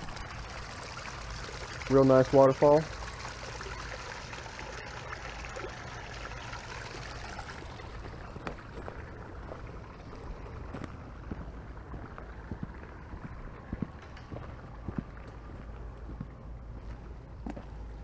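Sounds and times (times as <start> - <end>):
waterfall splashing into pond: 0.0 - 11.0.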